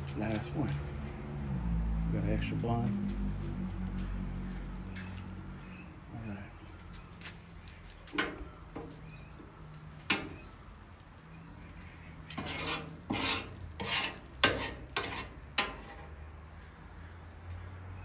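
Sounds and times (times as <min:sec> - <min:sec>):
metal utensil clacking on griddle: 0:08.1 - 0:09.0, 0:10.0 - 0:10.5, 0:12.3 - 0:16.2
metal utensil scraping griddle: 0:08.1 - 0:10.8, 0:11.7 - 0:16.2.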